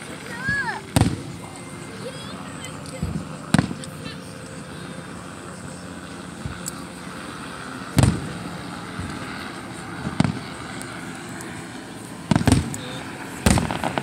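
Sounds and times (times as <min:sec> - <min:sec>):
steady background noise: 0:00.0 - 0:14.0
fireworks bangs: 0:00.4 - 0:02.3, 0:03.0 - 0:04.2, 0:07.9 - 0:09.4, 0:10.0 - 0:10.6, 0:12.2 - 0:14.0.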